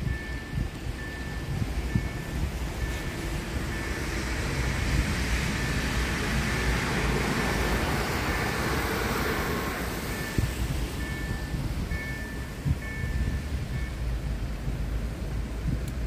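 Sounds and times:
level crossing warning chime: 0.0s - 4.3s, 9.6s - 14.1s
train passing: 0.0s - 15.7s.

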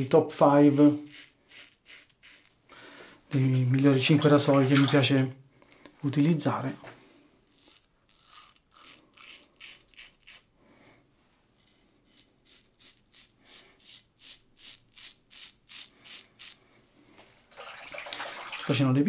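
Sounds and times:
razor scraping stubble: 0.7s - 2.6s, 7.5s - 10.5s, 11.6s - 16.6s.

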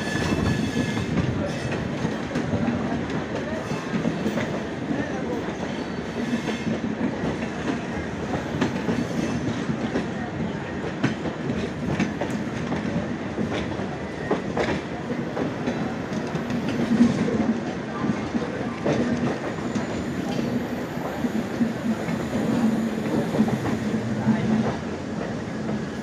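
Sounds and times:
train running noise: 0.0s - 26.0s.

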